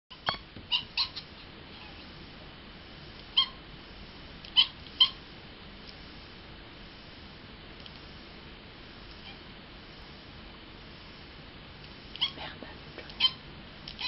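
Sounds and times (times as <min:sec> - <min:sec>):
cat chirping meows: 0:00.1 - 0:02.0, 0:03.4 - 0:03.6, 0:12.2 - 0:12.4.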